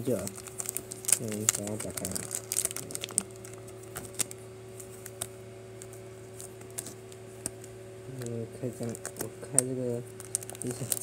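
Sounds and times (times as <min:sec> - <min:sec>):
plastic wrap crinkling: 0:00.0 - 0:11.0
steady low hum: 0:00.0 - 0:11.0.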